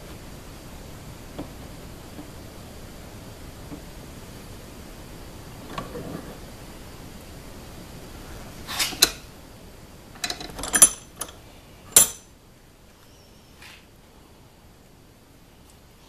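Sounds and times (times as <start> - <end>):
metallic clinks and clacks: 10.2 - 11.4, 12.0 - 12.3.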